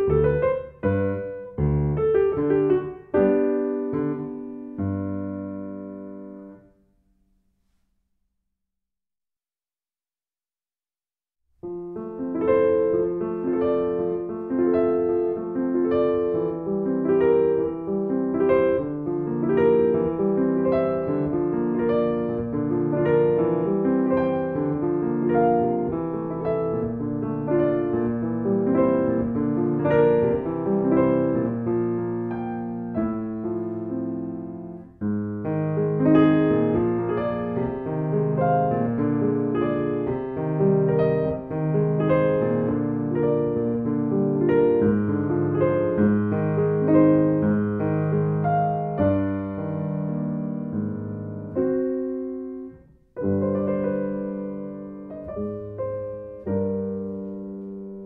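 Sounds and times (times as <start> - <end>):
solo piano piece: 0.0 - 8.1, 11.5 - 58.0.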